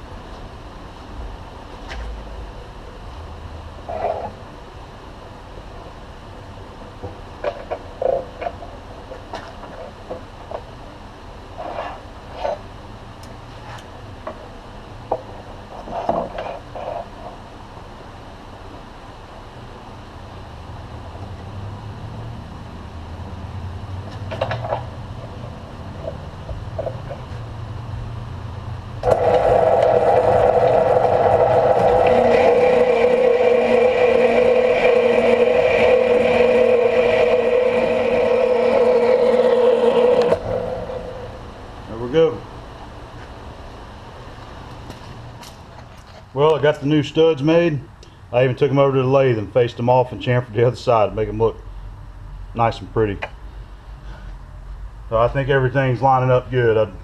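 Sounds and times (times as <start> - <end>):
high steady whine: 0.0 - 57.0
metal-cutting bandsaw running: 29.0 - 41.4.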